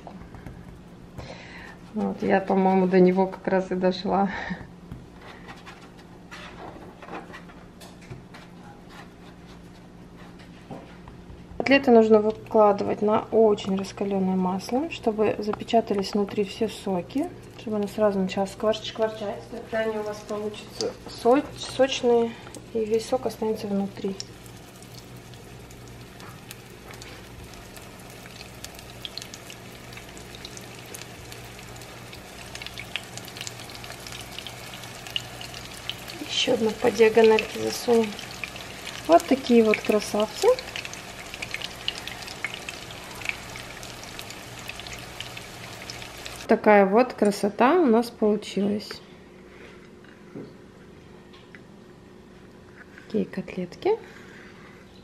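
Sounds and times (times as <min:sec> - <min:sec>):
patties sizzling in hot oil: 0:13.6 - 0:46.5.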